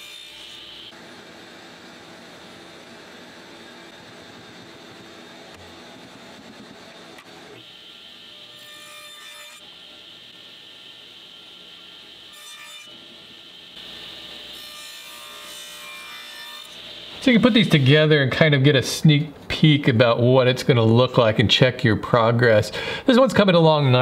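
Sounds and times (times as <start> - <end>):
table saw cutting wood: 0.0 - 18.2.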